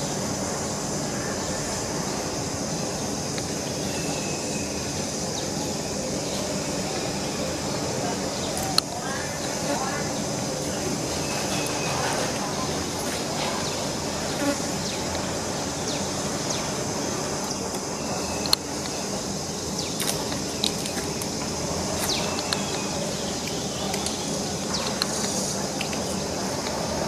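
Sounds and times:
faint clicks: 17.4s - 19.0s, 22.0s - 26.8s.

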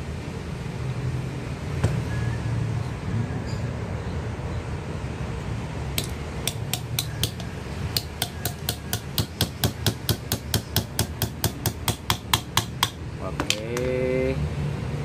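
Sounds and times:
metal tool tapping on metal: 6.0s - 13.9s.

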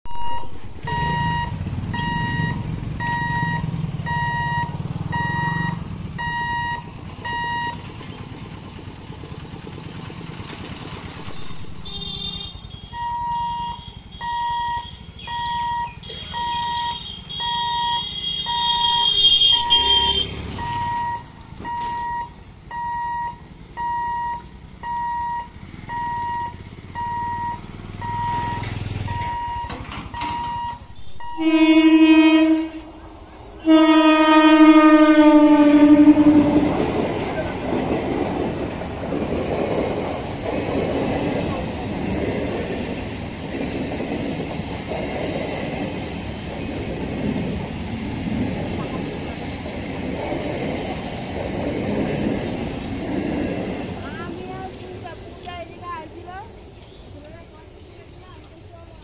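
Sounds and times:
level-crossing warning beeps: 0.1s - 8.0s, 12.7s - 32.0s
motorcycle engines running: 0.5s - 59.0s.

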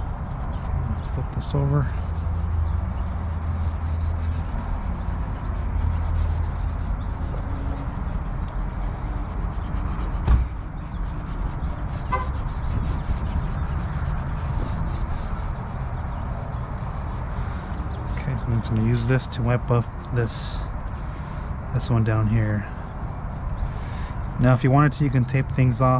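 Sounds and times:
wipe rubbing on plastic lens: 0.0s - 17.3s
sharp knock: 10.2s - 10.5s.

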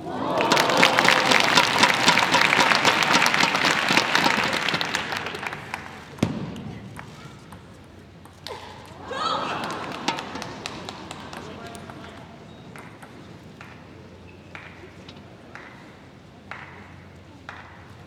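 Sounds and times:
crowd applauding and cheering: 0.0s - 6.2s, 9.0s - 11.8s.

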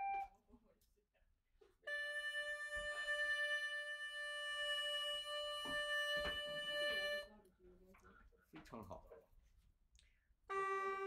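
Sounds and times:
gourd flute long note: 0.0s - 0.3s, 1.9s - 7.3s, 10.5s - 11.0s.

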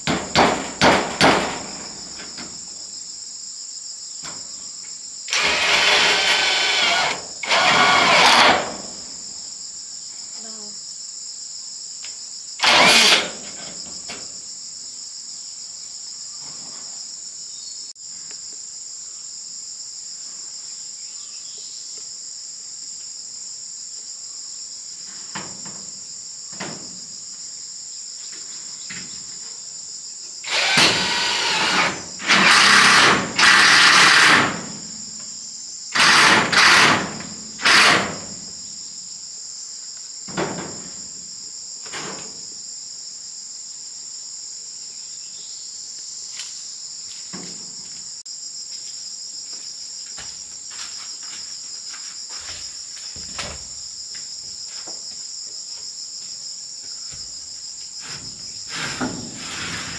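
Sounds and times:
high-pitched insect drone: 1.8s - 22.5s, 25.7s - 40.0s
power tool bursts: 5.3s - 8.9s, 12.6s - 13.6s, 30.4s - 34.8s, 35.9s - 38.4s.

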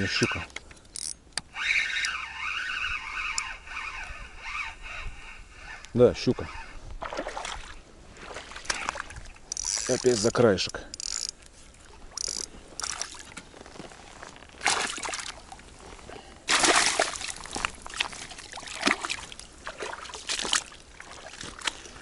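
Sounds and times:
river water splashing and trickling: 6.5s - 22.0s
loud splash: 16.5s - 20.6s.

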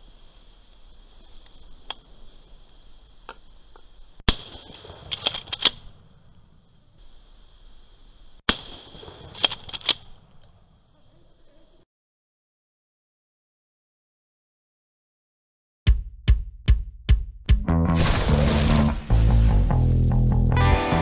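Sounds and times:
run of sharp cracks: 4.2s - 6.4s, 8.5s - 10.6s, 18.0s - 20.4s
shotgun shots: 18.0s - 19.3s.

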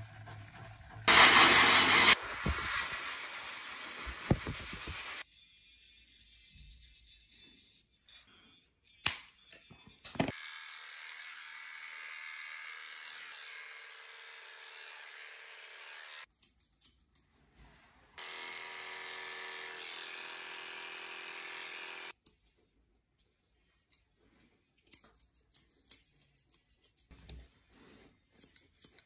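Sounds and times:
electric dog clippers running: 10.3s - 16.3s, 18.2s - 22.2s.

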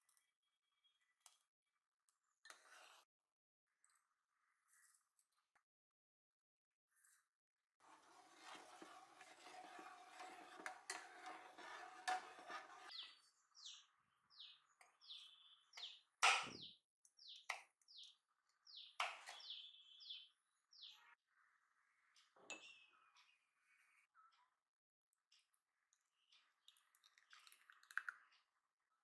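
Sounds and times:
spoon scraping metal pot: 7.8s - 13.2s
bird chirping falling calls: 12.9s - 21.0s.

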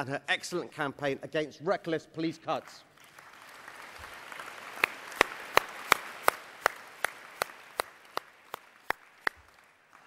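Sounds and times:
audience applause: 3.0s - 10.0s
single person clapping: 4.7s - 10.0s.

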